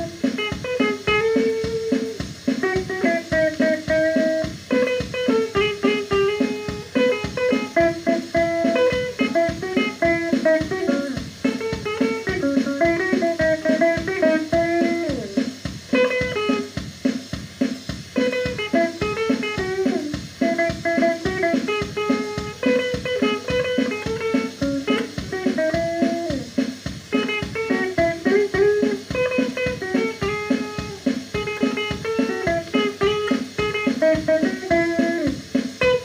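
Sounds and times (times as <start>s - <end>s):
electric guitar melody: 0.0s - 36.0s
steady beat: 0.0s - 36.0s.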